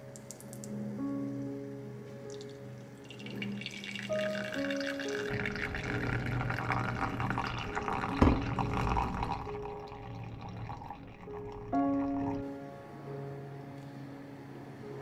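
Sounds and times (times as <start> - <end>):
soft background music: 0.0 - 15.0
water trickling and dripping: 2.2 - 12.4.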